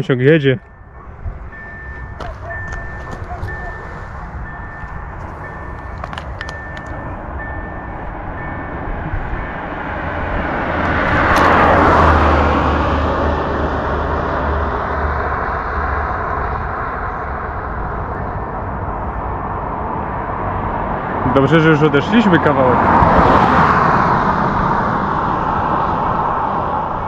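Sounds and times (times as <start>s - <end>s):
high reversing beep: 0.6s - 10.0s
motor vehicle passing by: 0.8s - 27.0s.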